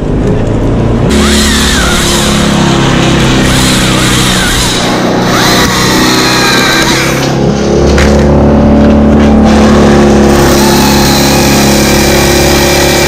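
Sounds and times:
chainsaw cutting wood: 1.1s - 7.4s, 9.5s - 13.0s.

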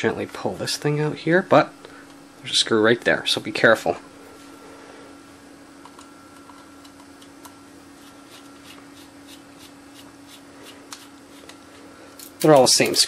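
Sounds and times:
steady low hum: 0.0s - 13.0s
screwdriver clicking and scraping: 12.2s - 13.0s.

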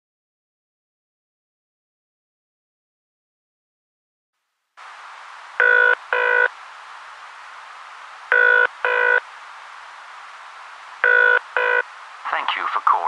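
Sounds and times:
phone line hiss: 5.5s - 6.6s, 8.1s - 9.4s, 10.8s - 12.8s
telephone ringing through handset: 11.0s - 11.8s.

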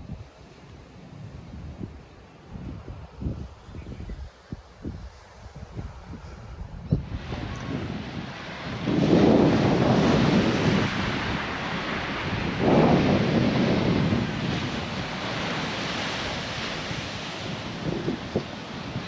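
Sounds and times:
wind on microphone: 0.0s - 19.0s
surf: 5.1s - 19.0s.

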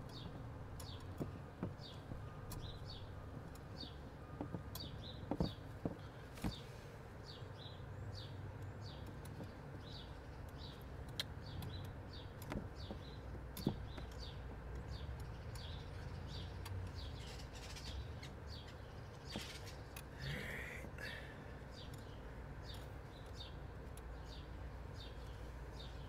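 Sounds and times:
bird chirping: 0.0s - 26.0s
equipment knocks and clicks: 4.4s - 6.6s.

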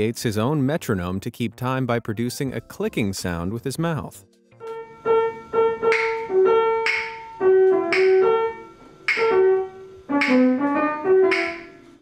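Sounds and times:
piano playing slow melody: 4.0s - 12.0s.

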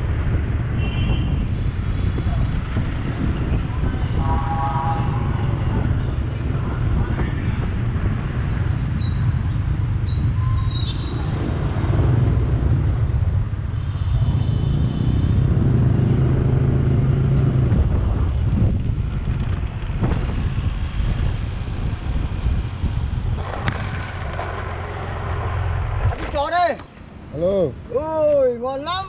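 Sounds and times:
road noise: 0.0s - 29.0s
motorcycle engine running: 23.4s - 26.2s.

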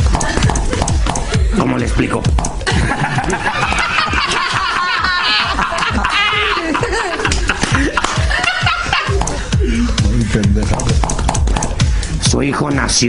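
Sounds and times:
person snickering and chuckling: 0.0s - 1.6s, 2.5s - 10.7s
music: 0.0s - 13.0s.

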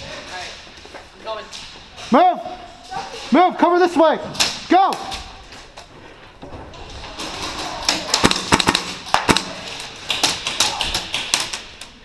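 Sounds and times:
pellets hitting plywood walls: 7.1s - 11.8s
airsoft gunshots: 7.9s - 10.3s.

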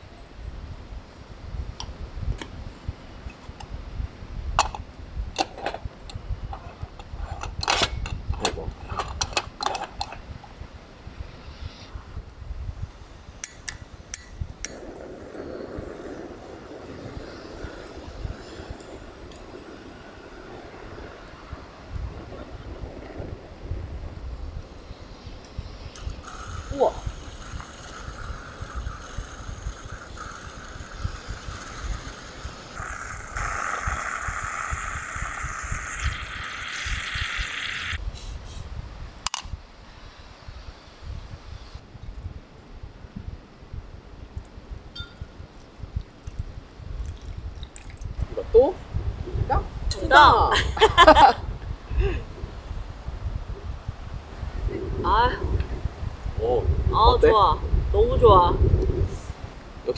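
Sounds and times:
wind buffeting microphone: 0.0s - 59.9s
gas burner rushing: 4.6s - 10.5s, 25.8s - 38.0s
moka pot hissing and sputtering: 4.6s - 10.5s, 12.8s - 38.5s
metallic lid click: 5.4s - 10.2s.

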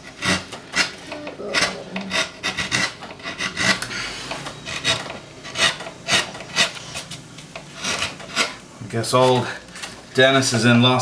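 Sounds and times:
carving tool scraping wood: 0.0s - 8.6s.

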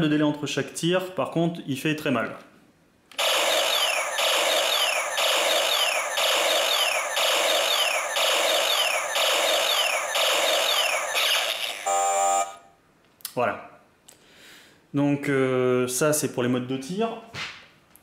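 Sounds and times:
toy blaster electronic zap: 3.2s - 12.5s.

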